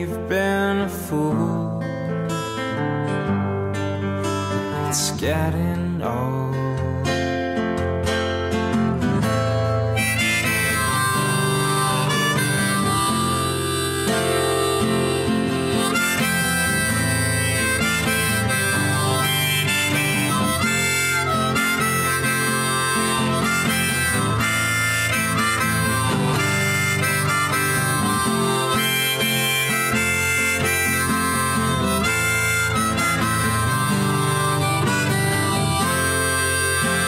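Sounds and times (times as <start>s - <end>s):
instrumental background music: 7.7s - 37.0s.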